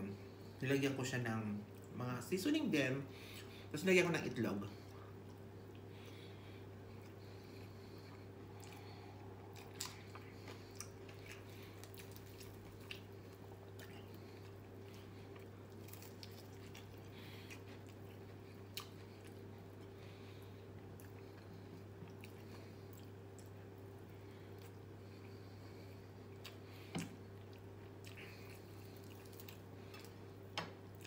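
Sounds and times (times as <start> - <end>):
steady low hum: 0.0 - 31.0
quiet chewing: 4.7 - 31.0
crunching fried chicken: 8.6 - 20.0, 27.5 - 30.2.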